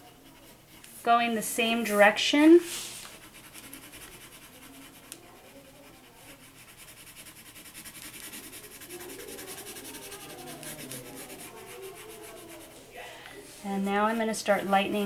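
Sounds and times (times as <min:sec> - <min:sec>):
colored pencil scratching on paper: 0:00.0 - 0:13.0.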